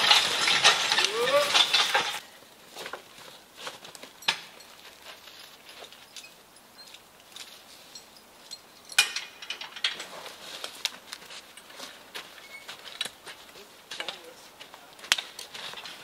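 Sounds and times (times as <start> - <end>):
chain and metal hardware clinking: 0.0 - 3.0, 3.6 - 13.2.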